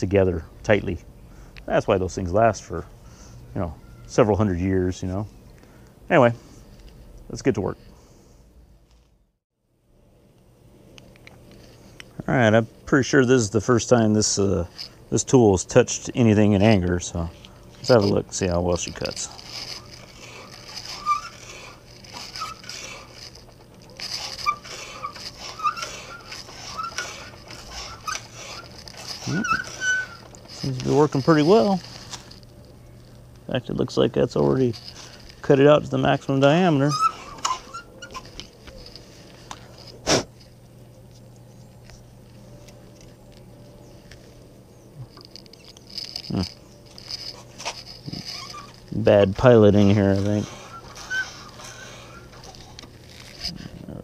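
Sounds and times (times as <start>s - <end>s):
hand brace squeaks: 14.2s - 33.2s, 34.4s - 40.0s, 44.8s - 54.0s
reamer rasping in wood: 17.1s - 32.0s, 47.4s - 53.6s
drill bit scraping into wood: 17.1s - 32.5s, 47.0s - 53.6s.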